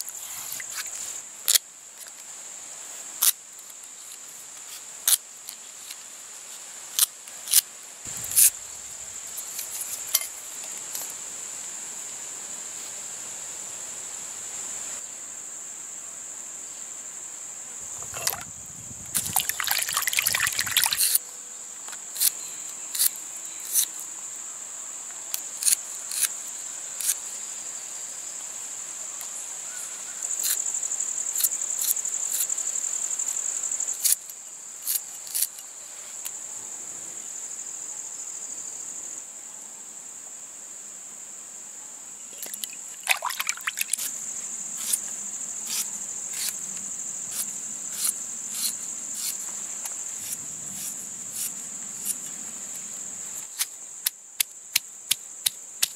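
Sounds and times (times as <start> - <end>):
insects chirring: 0.0 - 39.2, 39.8 - 55.9
hands splashing in water: 18.0 - 18.5, 19.1 - 21.1, 42.4 - 44.1.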